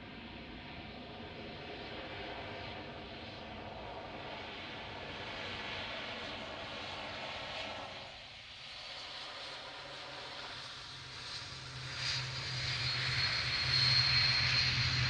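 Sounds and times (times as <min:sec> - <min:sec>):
turboprop engines droning: 0:09.6 - 0:15.0.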